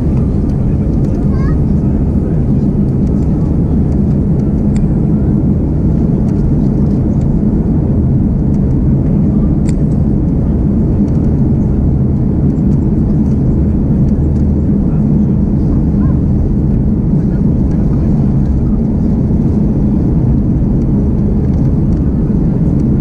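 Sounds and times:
aircraft engines rumbling: 0.0 - 23.0.

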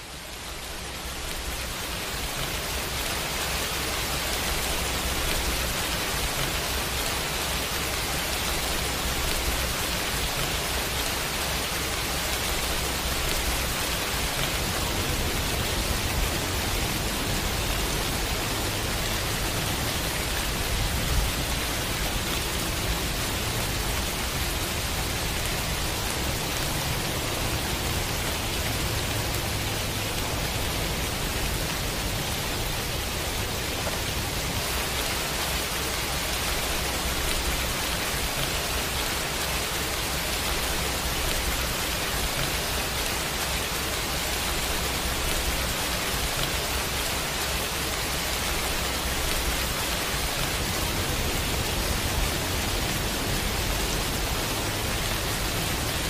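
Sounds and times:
steady pouring rain: 0.0 - 56.0.

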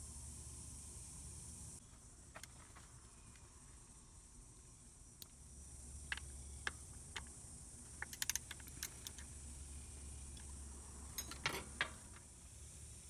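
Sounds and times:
ratchet clicking: 8.0 - 9.4.

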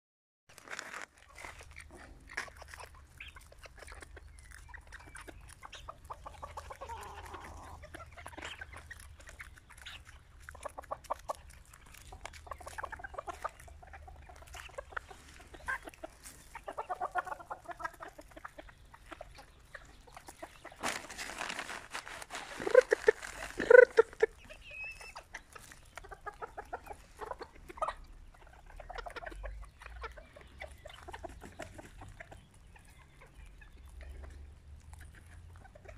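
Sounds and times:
chickens pecking: 0.6 - 35.9
chickens clucking: 0.7 - 35.9
loud chicken calls: 20.7 - 29.5.

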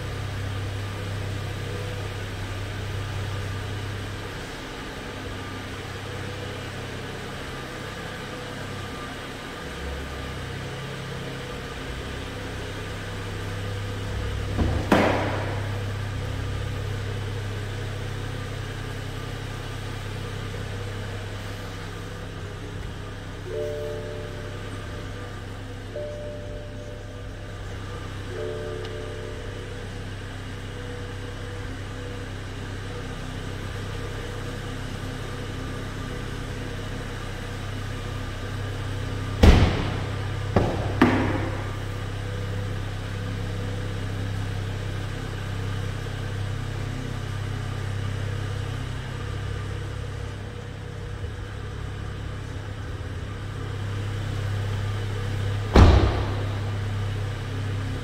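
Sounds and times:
steady low hum: 0.0 - 58.0
car doors shutting: 14.3 - 16.0, 39.3 - 42.7, 54.6 - 57.8.

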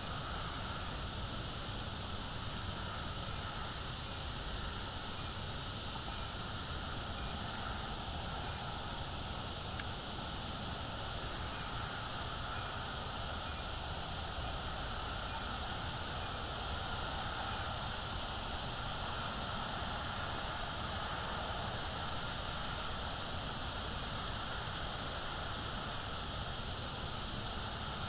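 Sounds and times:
even hiss: 0.0 - 28.0.

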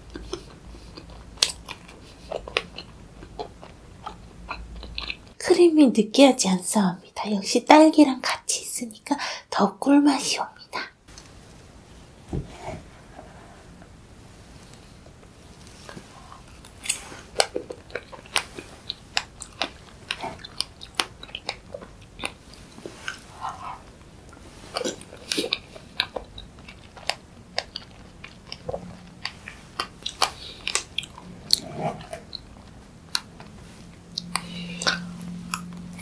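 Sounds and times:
chewing and wet mouth smacks: 0.0 - 5.4, 15.8 - 36.0.

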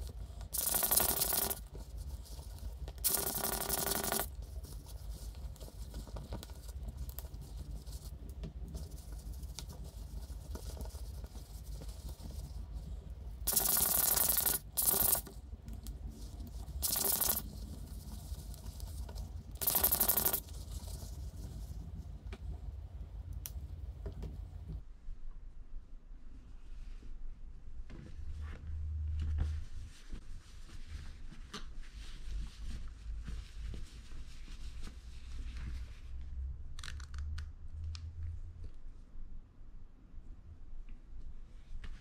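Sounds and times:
cloth rubbing on watch: 0.4 - 8.2, 8.8 - 15.3, 16.1 - 21.8, 29.4 - 36.1.

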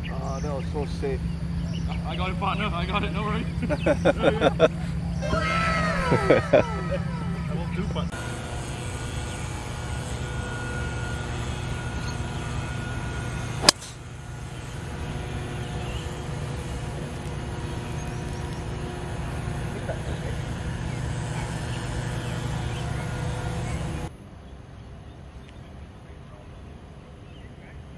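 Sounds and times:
steady low hum: 0.0 - 25.9
golf driver striking ball: 13.6 - 14.0.

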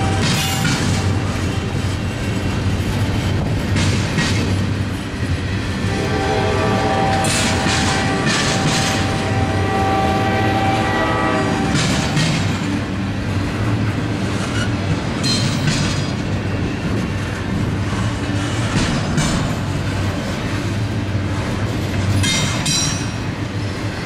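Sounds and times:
wheels clacking over rail joints: 0.0 - 24.0
train horn chord: 5.8 - 12.5.

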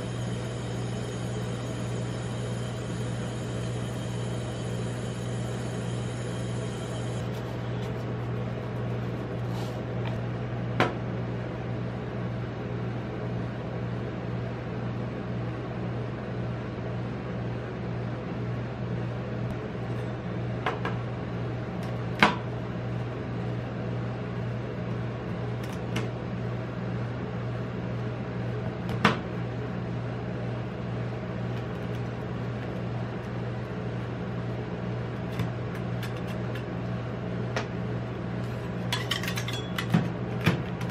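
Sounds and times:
refrigeration unit humming: 0.0 - 40.9.

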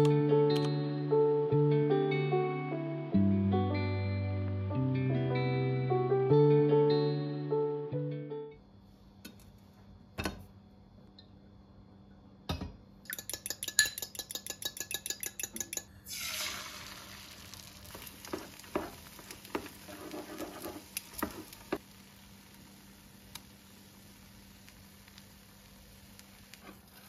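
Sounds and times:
fork beating egg in glass bowl: 13.1 - 15.9
egg sizzling in frying pan: 15.7 - 27.0.

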